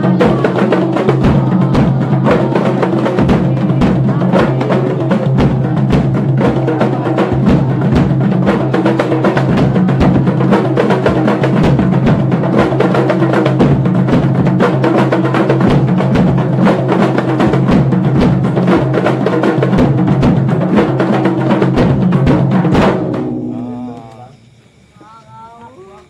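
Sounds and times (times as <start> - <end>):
frame drums playing fast rhythm: 0.0 - 24.0.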